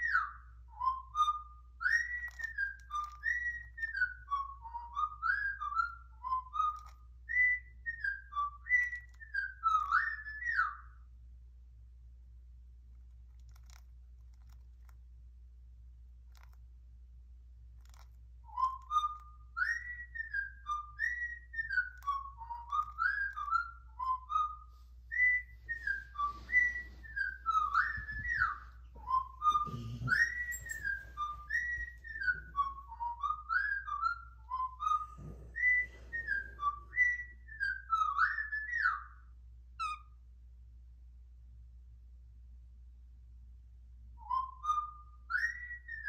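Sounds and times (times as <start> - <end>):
cockatiel whistling a tune: 0.0 - 11.0, 17.8 - 40.2, 44.2 - 46.0.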